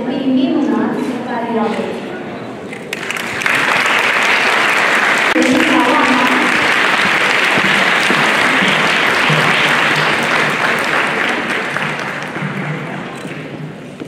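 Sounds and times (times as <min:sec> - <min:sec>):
large crowd applauding: 0:02.9 - 0:13.5.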